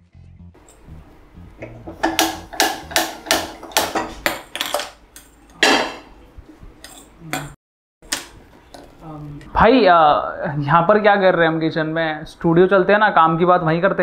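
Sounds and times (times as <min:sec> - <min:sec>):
utensils clattering against pots: 0:01.8 - 0:06.1, 0:06.8 - 0:09.0.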